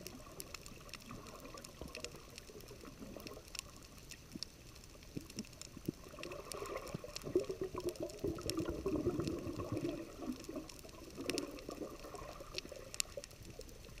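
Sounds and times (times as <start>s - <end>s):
low underwater burbling: 5.1s - 14.0s.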